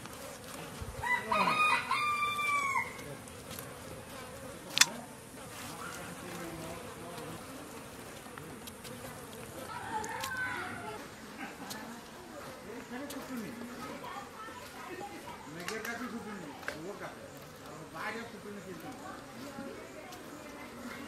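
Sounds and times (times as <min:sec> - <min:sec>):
buzz of insects: 0:00.0 - 0:21.0
rooster crowing: 0:01.0 - 0:03.0
sharp click: 0:04.7 - 0:05.0.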